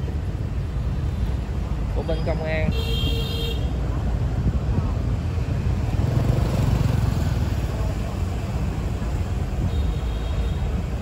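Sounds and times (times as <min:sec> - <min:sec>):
road and wind rumble: 0:00.0 - 0:11.0
motorbikes riding by: 0:03.8 - 0:11.0.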